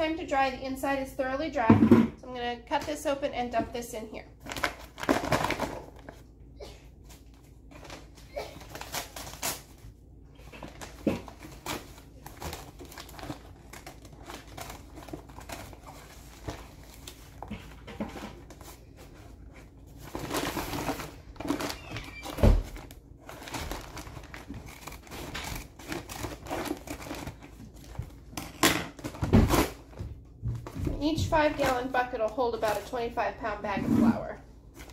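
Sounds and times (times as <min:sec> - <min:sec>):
paper crinkling: 0:07.0 - 0:28.3.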